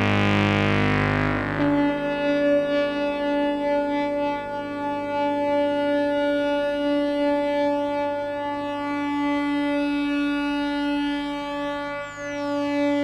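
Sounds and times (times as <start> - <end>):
synthesizer drone: 0.0 - 13.0.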